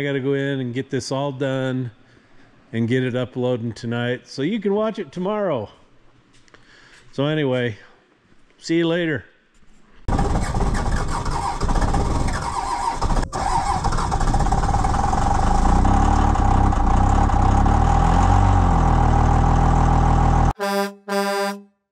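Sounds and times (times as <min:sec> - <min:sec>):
truck engine running loudly: 0:14.1 - 0:20.5
short horn blast: 0:20.6 - 0:21.9.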